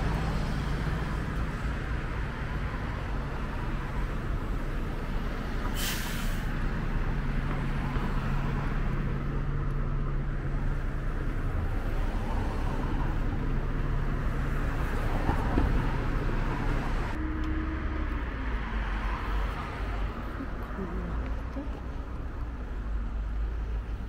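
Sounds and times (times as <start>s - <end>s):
bus engine hum: 0.0s - 24.0s
hiss of passing cars: 4.9s - 7.0s.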